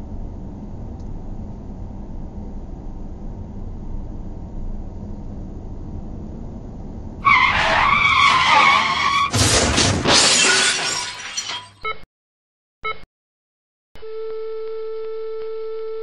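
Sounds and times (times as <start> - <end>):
car engine and road noise: 0.0 - 10.1
car tyres screeching: 7.2 - 9.7
car crash with shattering glass: 7.2 - 11.8.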